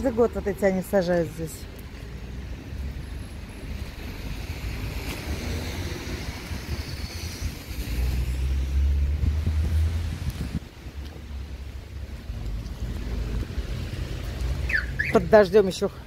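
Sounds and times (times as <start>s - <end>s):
wind buffeting microphone: 3.8s - 15.0s.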